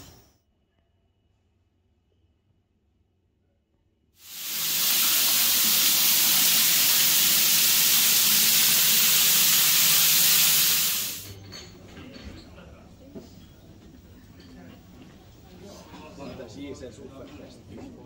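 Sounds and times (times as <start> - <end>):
shower water spraying: 4.2 - 11.3.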